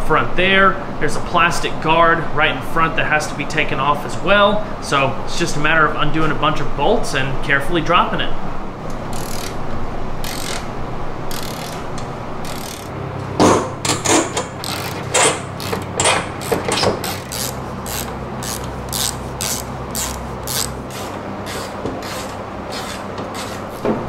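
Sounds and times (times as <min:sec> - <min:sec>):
steady low hum: 0:00.0 - 0:24.0
ratchet clicks: 0:09.1 - 0:09.6, 0:10.2 - 0:10.7, 0:11.3 - 0:12.9, 0:13.9 - 0:23.9.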